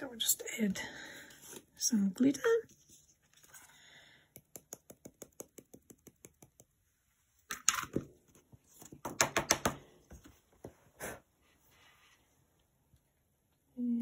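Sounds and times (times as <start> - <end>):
rapid tapping on glitter jar: 4.4 - 6.8.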